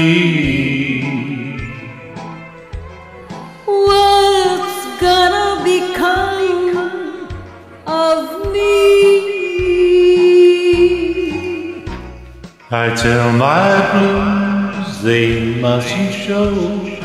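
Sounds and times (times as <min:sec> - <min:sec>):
person singing a slow ballad: 0:00.0 - 0:02.7, 0:03.3 - 0:17.0
backing track with bass line: 0:10.8 - 0:17.0.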